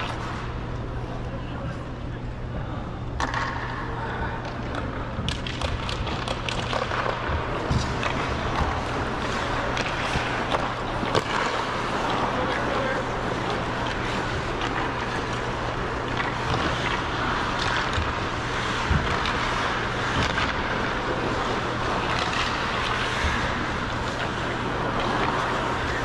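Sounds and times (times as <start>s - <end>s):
ice skates scraping on ice: 5.4s - 26.0s.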